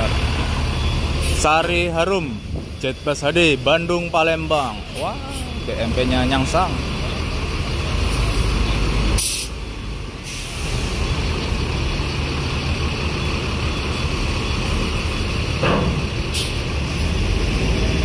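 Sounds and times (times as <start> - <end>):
diesel buses and trucks running: 0.0 - 18.0
air brake hiss: 9.2 - 9.6, 10.2 - 11.0, 16.3 - 16.6.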